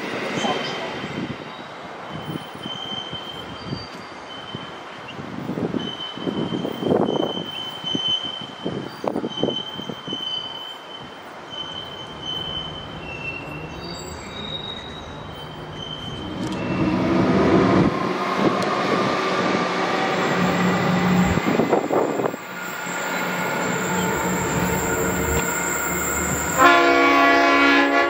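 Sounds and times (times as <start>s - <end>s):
train wheel squeal: 0.4s - 19.0s, 19.8s - 27.9s
locomotive engine drone: 12.1s - 28.0s.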